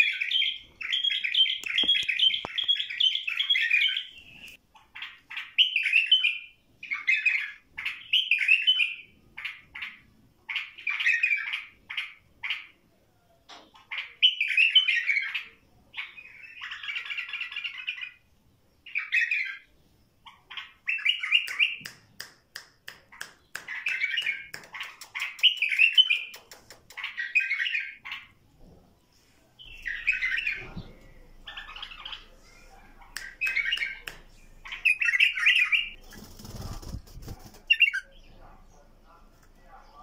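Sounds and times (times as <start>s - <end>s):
bird chirping calls: 0.0s - 12.8s, 13.5s - 40.0s
sharp ticks: 24.3s - 27.0s
wing flutters: 35.9s - 38.0s.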